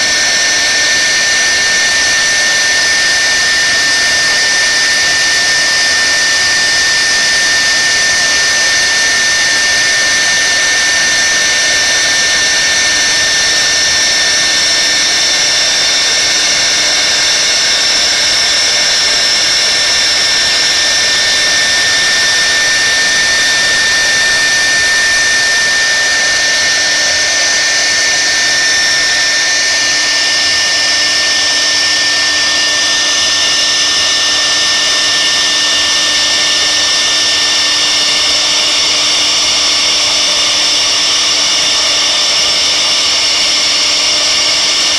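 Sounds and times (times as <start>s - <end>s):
router spindle high-pitched whine: 0.0s - 44.9s.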